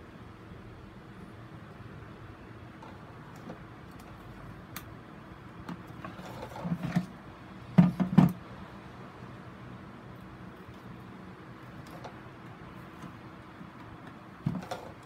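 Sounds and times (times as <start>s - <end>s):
light plastic clicks and rustles: 11.6s - 15.0s.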